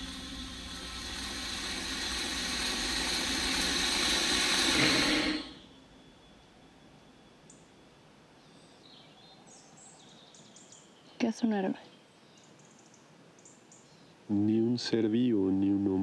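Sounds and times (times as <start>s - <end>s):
rushing hiss: 0.0s - 5.6s.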